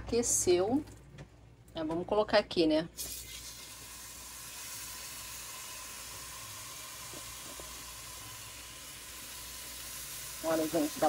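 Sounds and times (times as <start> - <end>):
steak sizzling in a frying pan: 3.0 - 11.0.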